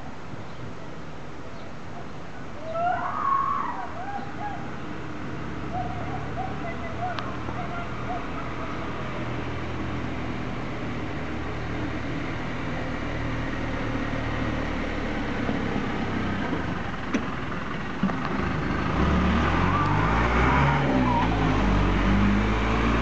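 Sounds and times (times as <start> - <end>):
tow truck engine running: 4.7 - 23.0.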